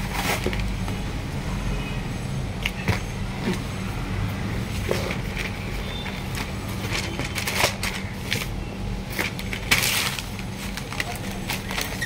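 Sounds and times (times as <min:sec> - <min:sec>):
card and paper rustling: 0:00.0 - 0:00.9, 0:04.7 - 0:12.0.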